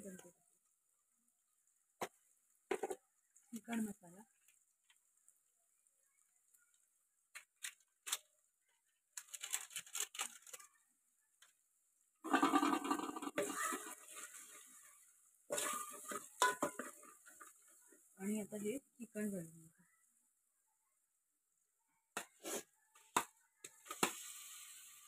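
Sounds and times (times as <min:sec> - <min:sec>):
metal spoon scraping a pot: 0:12.3 - 0:14.8, 0:15.5 - 0:17.7.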